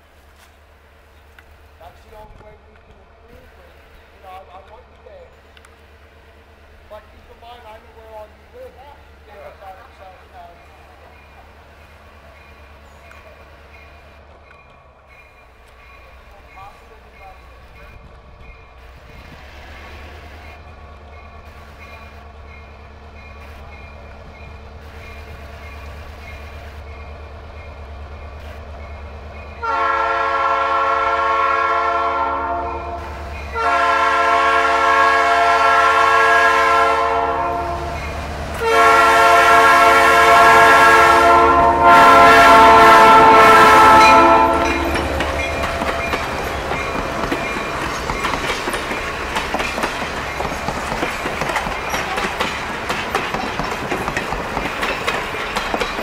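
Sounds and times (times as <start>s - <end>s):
train wheels clicking over rail joints: 0.0s - 29.6s, 43.0s - 56.0s
locomotive engine rumble: 0.0s - 56.0s
locomotive air horn blasts: 29.6s - 38.0s, 38.6s - 46.0s.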